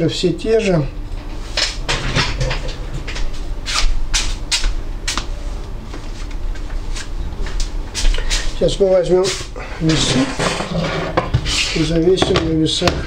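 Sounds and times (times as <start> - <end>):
low hum: 4.7 - 11.3.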